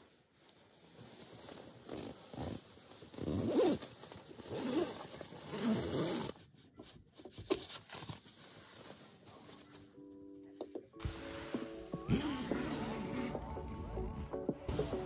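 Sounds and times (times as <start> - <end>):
fabric rustling: 0.0 - 10.0, 11.0 - 15.0
zipper being pulled open: 1.7 - 6.4, 11.1 - 14.0.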